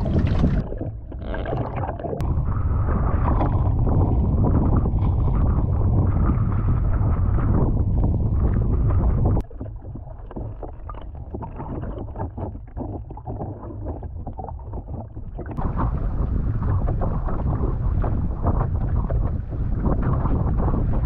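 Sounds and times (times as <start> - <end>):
wind buffeting microphone: 0.0 - 1.6, 2.2 - 10.1, 13.4 - 21.0
muffled underwater sound: 0.0 - 21.0
water splashing along boat hull: 0.0 - 21.0.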